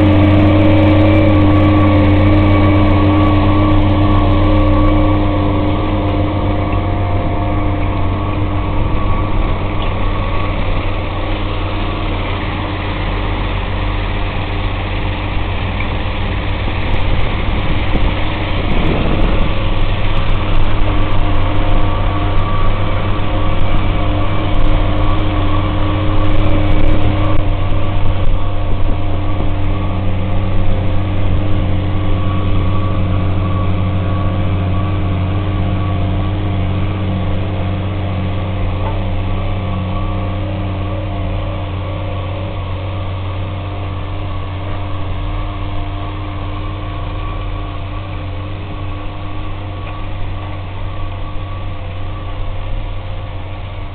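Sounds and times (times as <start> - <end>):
tractor engine droning: 0.0 - 53.9.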